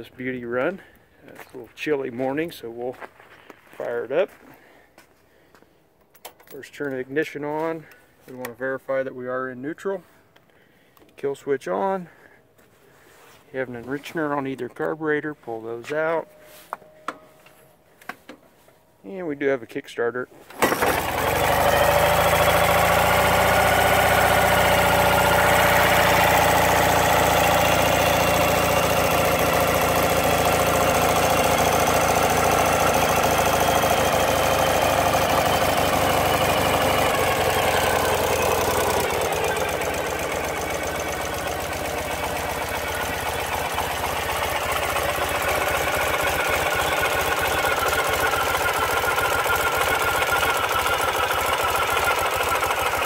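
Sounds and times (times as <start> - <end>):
motorcycle engine idling: 20.6 - 53.0.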